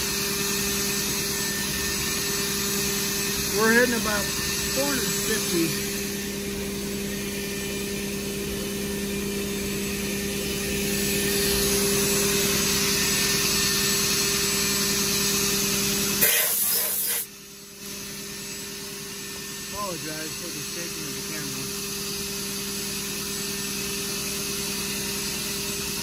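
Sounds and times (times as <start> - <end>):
mill cutting aluminium: 2.8 - 6.3.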